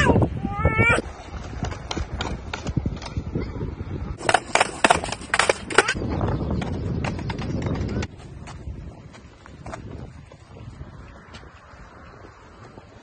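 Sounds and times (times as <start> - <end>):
skateboard wheels clacking on steps: 1.3 - 3.2, 4.2 - 9.9.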